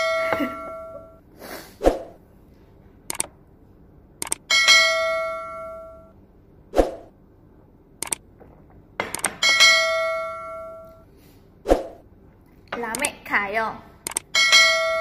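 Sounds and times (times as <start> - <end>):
mouse clicks: 3.1 - 3.3, 8.0 - 8.2.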